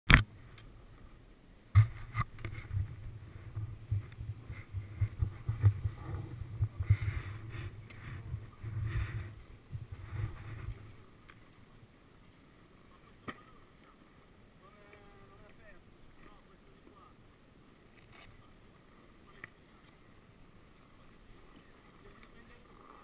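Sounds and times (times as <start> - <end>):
muffled bumps and rustling: 1.7 - 11.0
sharp knock: 1.8 - 2.3.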